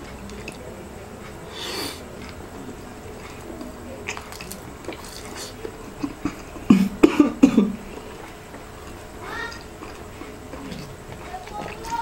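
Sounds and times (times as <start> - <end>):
wet chewing and mouth sounds: 0.0 - 7.0, 7.8 - 12.0
man coughing: 6.2 - 7.8.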